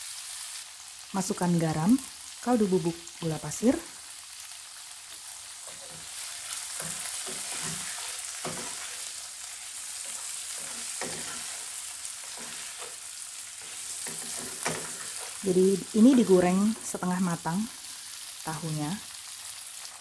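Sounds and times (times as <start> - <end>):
food sizzling in hot oil: 0.0 - 20.0
spatula scraping and knocking pan: 5.6 - 9.3, 9.9 - 17.0.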